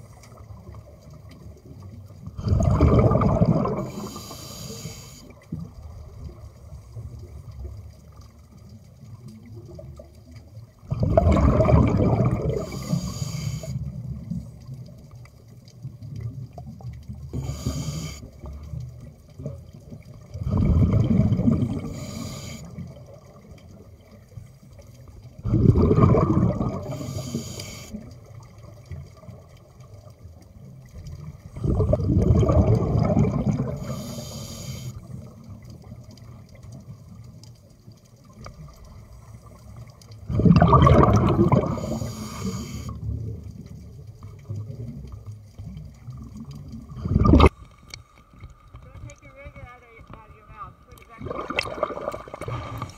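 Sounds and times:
bubbling underwater exhalations: 2.2 - 4.3, 10.9 - 13.1, 20.2 - 22.2, 25.4 - 28.1, 31.5 - 34.2, 40.2 - 43.6, 46.0 - 47.6, 51.1 - 52.9.

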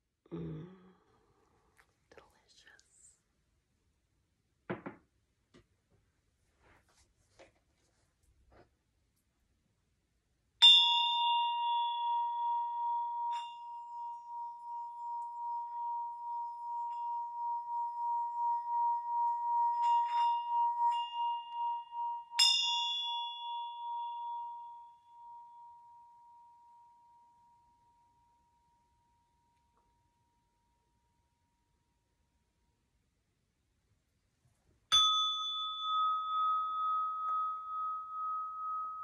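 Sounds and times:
hand bell ringing: 10.6 - 27.1, 34.9 - 39.0.

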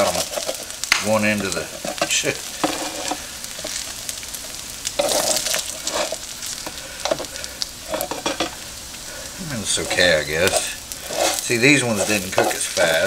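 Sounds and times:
hash browns sizzling on griddle: 0.0 - 13.0
plastic spatula scraping: 1.4 - 4.0, 5.0 - 7.3, 9.6 - 13.0.

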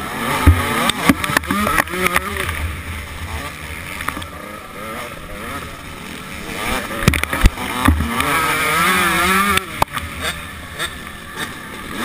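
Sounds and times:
motocross engine at full throttle: 0.0 - 12.0
sharp knocks: 0.4 - 2.3.

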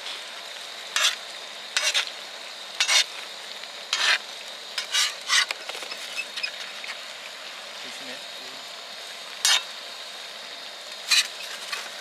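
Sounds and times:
sauce sizzling: 0.0 - 12.0
metal spatula scraping a pan: 1.0 - 1.2, 1.8 - 2.1, 2.8 - 3.2, 3.9 - 7.0, 9.4 - 9.7, 11.0 - 11.9.

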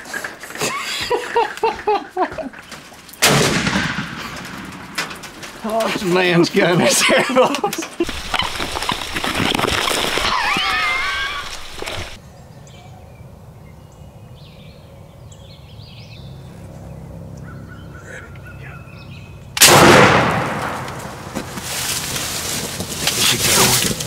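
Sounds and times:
shotgun blast: 3.2 - 5.0, 19.6 - 21.3
faint chirping bird calls: 12.2 - 19.6.

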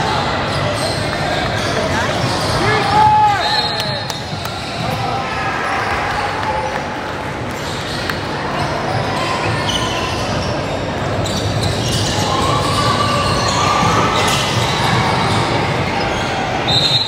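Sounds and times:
balls bouncing on court: 0.8 - 5.3.

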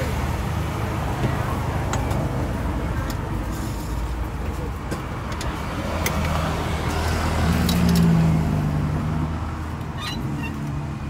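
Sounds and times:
vehicle engine passing by: 5.6 - 11.0.

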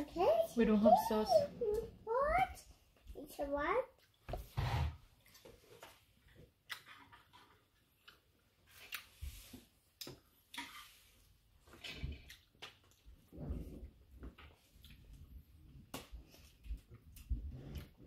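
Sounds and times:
person chewing: 6.6 - 9.2.

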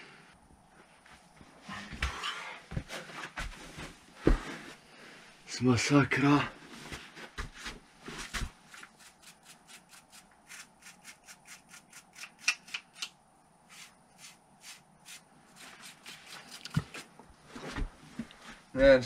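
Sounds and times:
toothbrush scrubbing rock: 8.8 - 12.5, 13.7 - 17.1.

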